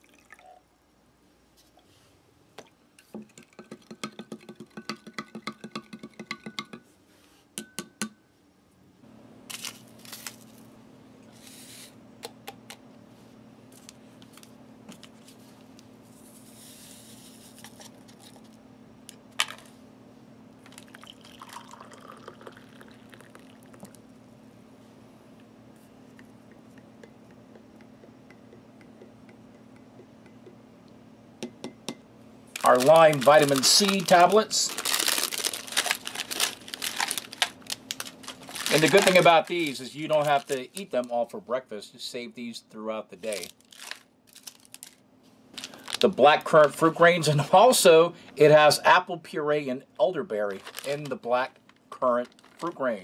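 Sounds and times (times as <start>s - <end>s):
steady low hum: 0.8s - 53.0s
sachets rustling: 9.5s - 10.7s, 32.6s - 41.1s, 43.3s - 46.8s, 50.5s - 53.0s
drink stirred in a mug: 20.8s - 24.0s.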